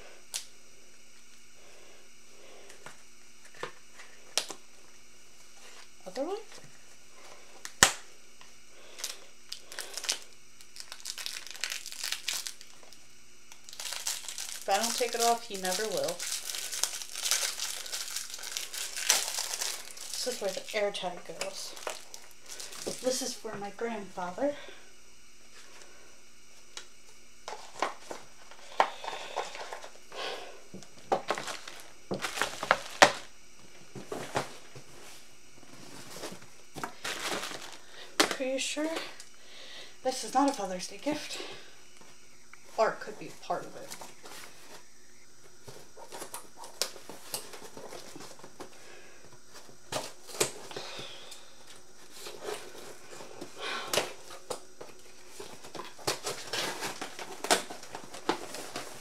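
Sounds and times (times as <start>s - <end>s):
packaging crinkling: 8.8s - 23.2s, 31.1s - 38.4s, 49.4s - 59.0s.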